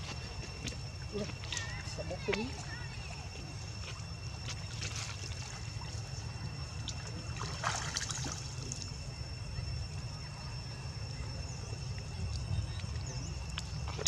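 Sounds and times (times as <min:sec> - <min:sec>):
water splashing: 0:04.4 - 0:06.1, 0:06.8 - 0:09.0.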